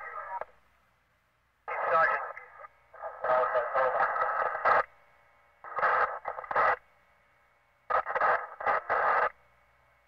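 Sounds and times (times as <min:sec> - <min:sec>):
police radio transmissions: 0:00.0 - 0:00.5, 0:01.7 - 0:04.9, 0:05.7 - 0:06.8, 0:07.9 - 0:09.3
faint hiss and hum: 0:00.0 - 0:10.0.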